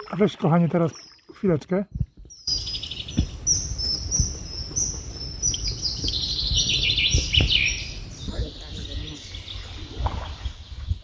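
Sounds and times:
small songbird singing: 0.0s - 11.0s
dull knocks: 7.1s - 8.4s.

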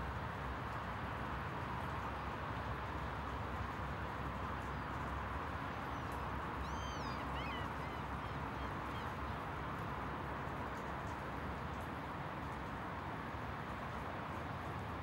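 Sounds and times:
bird calling: 6.6s - 9.2s.

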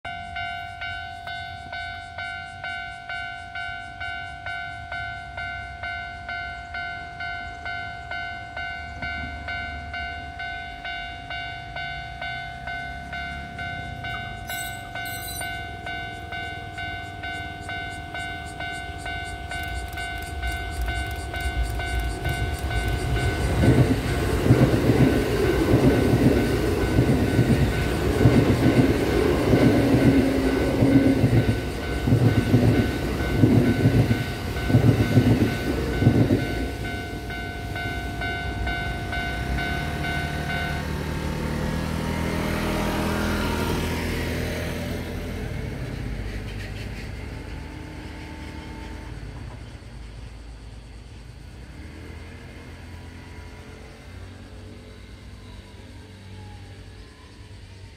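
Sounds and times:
crossing warning bell ringing: 0.0s - 57.6s
train wheels clattering over rail joints: 13.1s - 49.8s.

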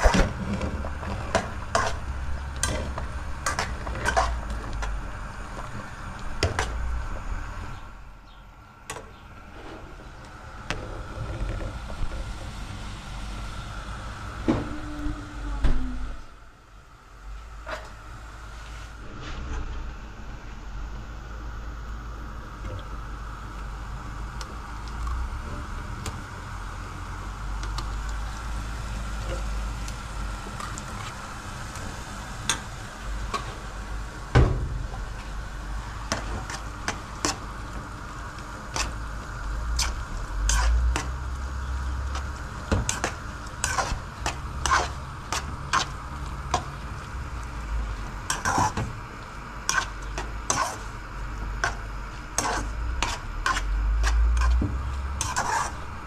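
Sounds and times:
spoon scraping frying pan: 0.5s - 4.5s, 39.8s - 41.1s, 42.1s - 46.8s, 48.3s - 48.8s, 49.7s - 50.9s, 52.4s - 55.9s
pan sizzling softly: 17.3s - 56.0s.

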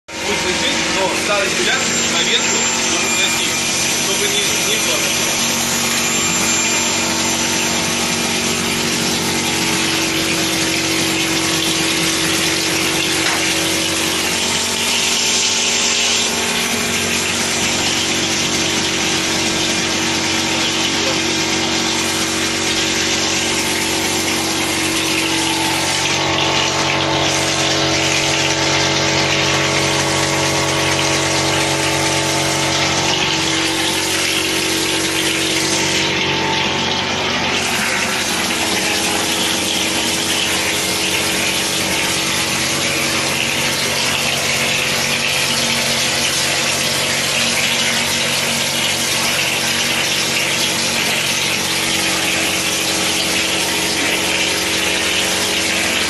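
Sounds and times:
plastering machine humming and hissing: 0.1s - 56.0s.

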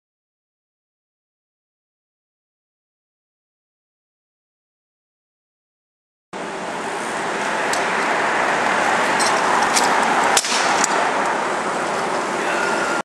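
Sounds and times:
scooter landing smack: 10.4s - 10.8s.

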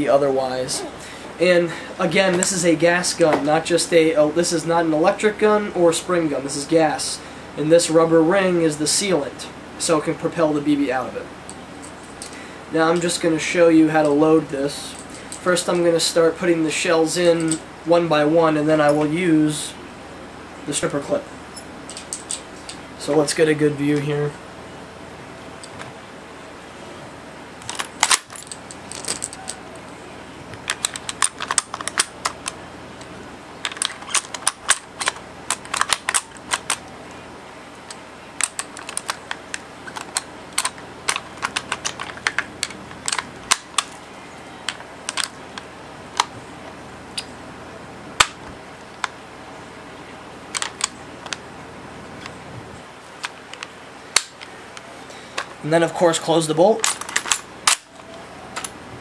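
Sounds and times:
metallic clicks and clatter: 27.6s - 29.6s, 30.6s - 32.6s, 33.6s - 36.9s, 37.9s - 44.0s, 44.7s - 45.4s, 56.8s - 58.8s.

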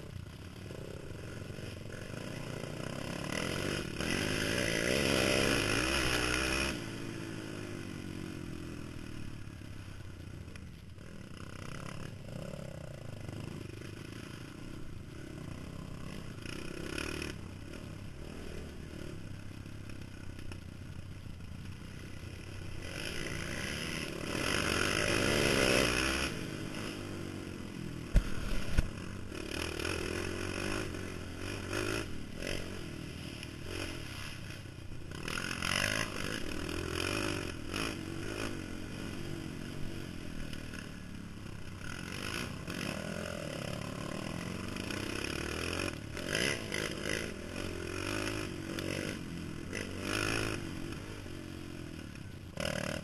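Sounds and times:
quad engine running: 0.0s - 53.0s
clatter and scraping over ground: 28.0s - 39.5s.

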